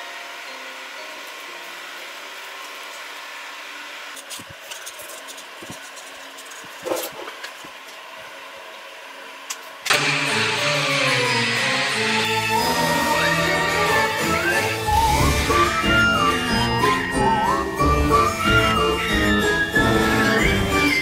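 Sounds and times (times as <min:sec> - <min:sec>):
wood and paper knocks and rustles: 0:04.2 - 0:07.8
music: 0:09.9 - 0:21.0.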